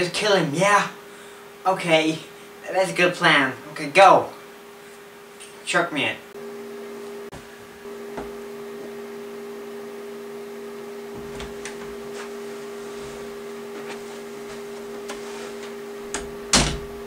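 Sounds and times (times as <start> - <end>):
two-tone electrical hum: 0.0 - 17.0
footsteps: 11.1 - 16.4.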